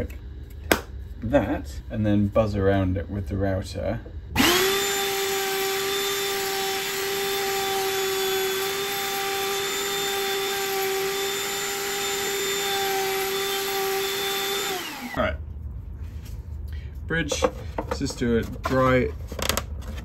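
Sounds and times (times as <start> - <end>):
wood router running: 4.4 - 15.2.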